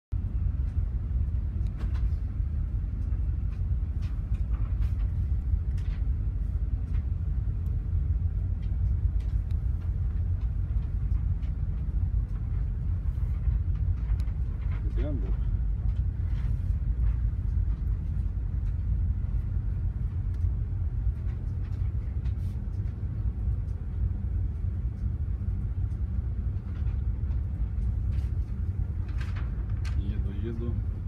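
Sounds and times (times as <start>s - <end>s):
ship low rumble: 0.1s - 31.0s
wind buffeting microphone: 0.1s - 31.0s.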